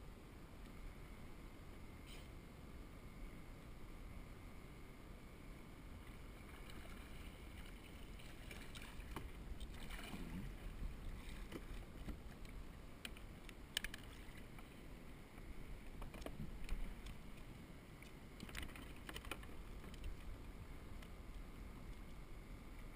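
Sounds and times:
water lapping around kayak: 5.6s - 22.9s.

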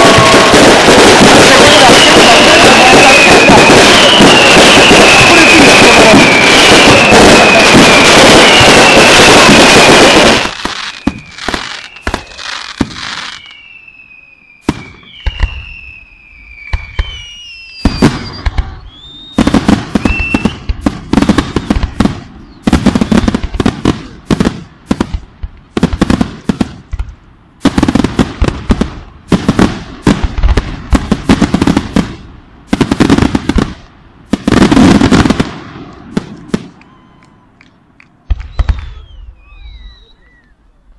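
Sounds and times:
fireworks whistles falling in pitch: 0.0s - 25.2s, 36.1s - 40.9s
fireworks bangs and crackle: 0.0s - 40.5s.

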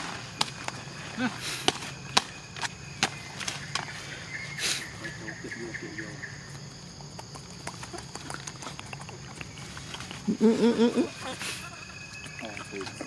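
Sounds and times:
insects buzzing: 0.0s - 13.0s
rustling leaves and twigs: 0.0s - 13.0s.

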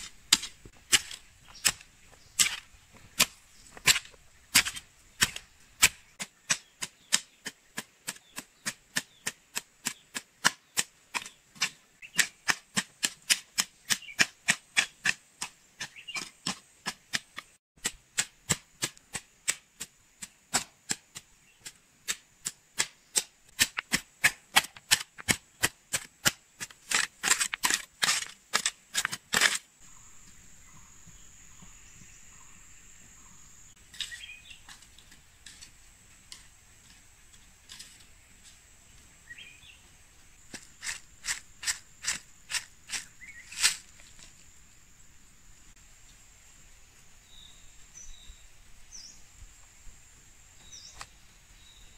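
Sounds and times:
hoe chopping into soil: 0.0s - 29.7s, 40.4s - 44.3s
faint high hiss: 29.8s - 51.9s.

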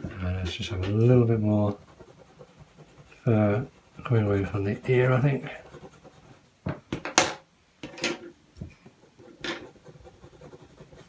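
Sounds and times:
coloured pencil strokes on card: 1.2s - 6.5s, 9.1s - 11.0s.

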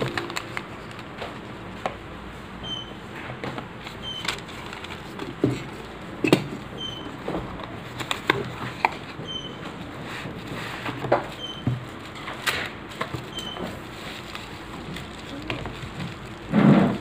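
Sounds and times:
paper rustling: 0.0s - 1.6s, 3.8s - 17.0s
hands handling cardboard box: 7.3s - 17.0s.

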